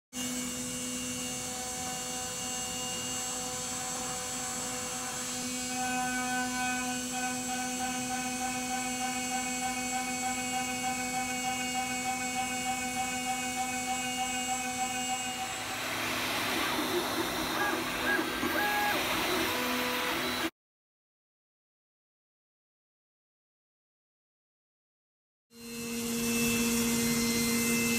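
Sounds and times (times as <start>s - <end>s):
machine hum and whine: 0.2s - 20.5s.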